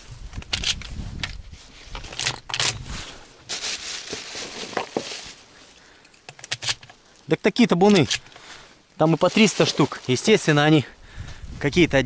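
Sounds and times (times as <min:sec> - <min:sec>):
microphone handling rumble: 0:00.0 - 0:03.2
dry reeds rustling: 0:00.0 - 0:12.0.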